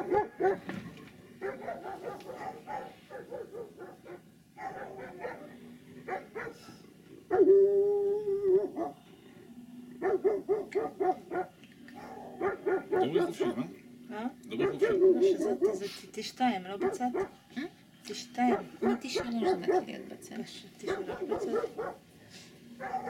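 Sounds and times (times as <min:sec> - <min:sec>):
dog barking: 0:00.0 - 0:00.7, 0:01.4 - 0:06.7, 0:07.3 - 0:07.6, 0:08.5 - 0:09.0, 0:10.0 - 0:13.6, 0:14.5 - 0:15.8, 0:16.8 - 0:17.4, 0:18.4 - 0:20.0, 0:20.8 - 0:22.1, 0:22.8 - 0:23.0.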